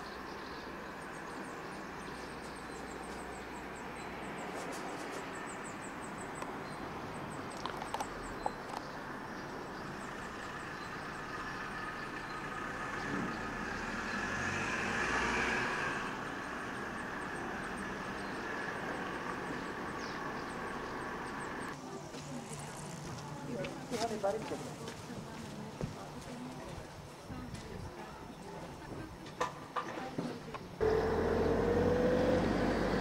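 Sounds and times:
road traffic hum: 0:00.0 - 0:33.0
vehicle passing: 0:09.9 - 0:21.8, 0:30.8 - 0:33.0.

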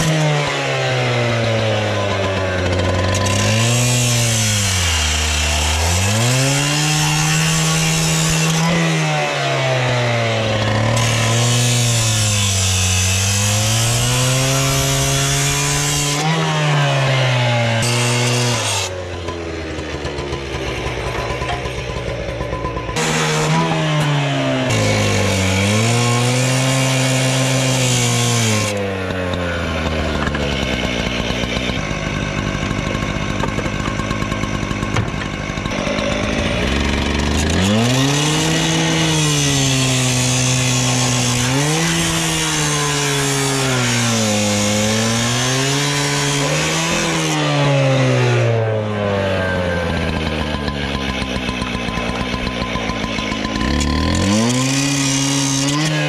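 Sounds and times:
cut-off saw engine revving: 0:00.0 - 0:56.0
disc grinding through steel: 0:49.4 - 0:56.0.

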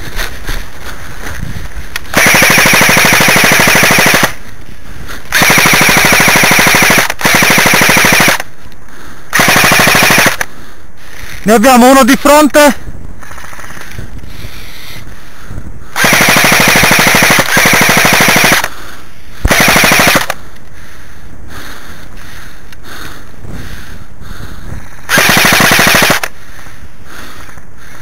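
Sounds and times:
airsoft rifle bursts: 0:02.0 - 0:04.5, 0:05.3 - 0:08.6, 0:09.3 - 0:10.5, 0:16.0 - 0:18.8, 0:19.4 - 0:20.5, 0:25.1 - 0:26.4.

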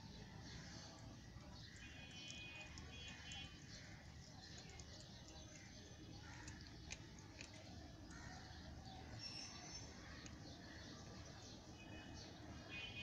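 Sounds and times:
cat chewing: 0:06.2 - 0:08.1.

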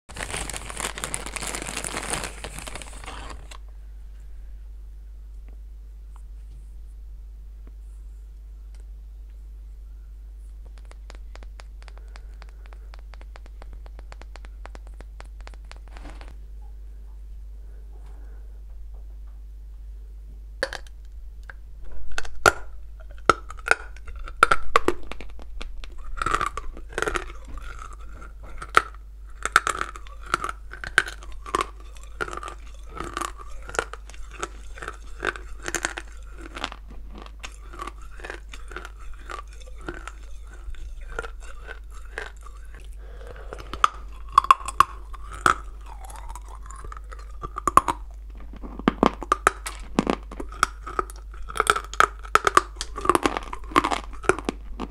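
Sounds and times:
clay being chewed with crunches: 0:10.5 - 0:16.4, 0:20.6 - 0:54.9.

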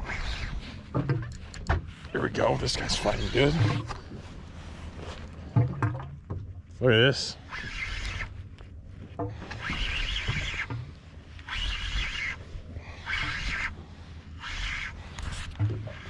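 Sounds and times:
fishing reel cranking: 0:07.5 - 0:08.3, 0:09.5 - 0:10.7.

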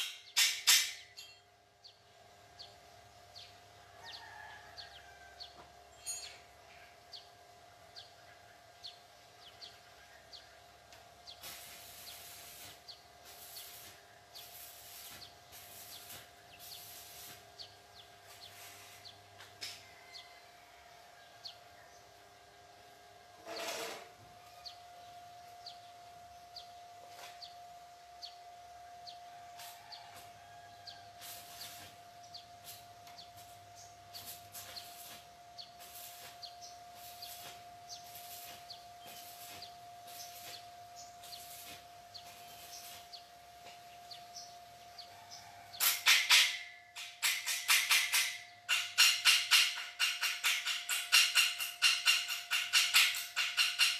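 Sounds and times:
short hissing bursts: 0:11.3 - 0:17.7, 0:18.3 - 0:19.2, 0:31.2 - 0:32.0.

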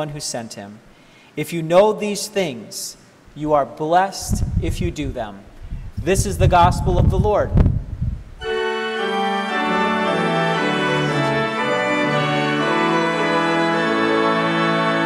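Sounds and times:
organ playing sustained chords: 0:08.4 - 0:15.0.

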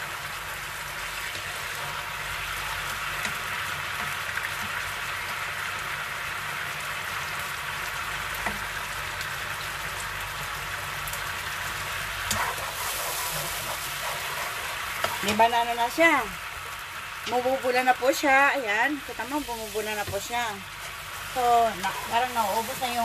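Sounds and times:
sauce sizzling and bubbling in a pan: 0:00.0 - 0:23.0.

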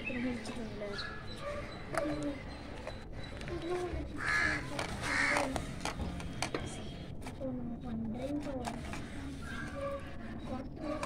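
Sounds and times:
crow cawing: 0:04.2 - 0:05.7.

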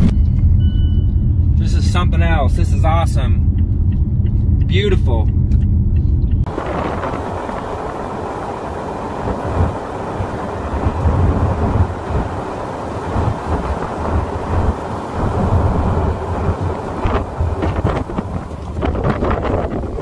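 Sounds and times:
strong wind buffeting microphone: 0:05.3 - 0:20.0.

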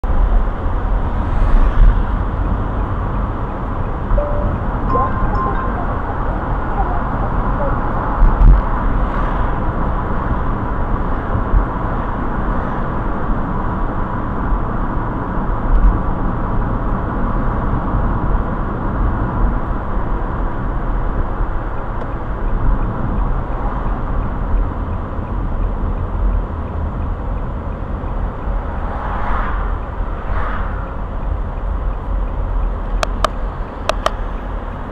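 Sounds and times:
car engine and tyre noise: 0:00.0 - 0:34.9
traffic rushing: 0:00.0 - 0:34.9
passing vehicle swells: 0:00.5 - 0:03.4, 0:28.0 - 0:32.0.

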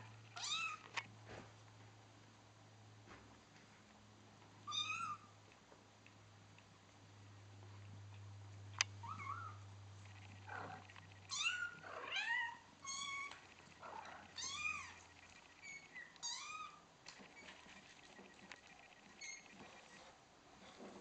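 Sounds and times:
kittens mewing: 0:10.4 - 0:16.8.

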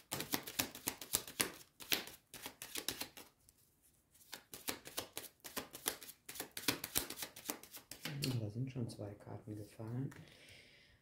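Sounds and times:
cards being shuffled: 0:00.0 - 0:03.6, 0:04.2 - 0:08.4.

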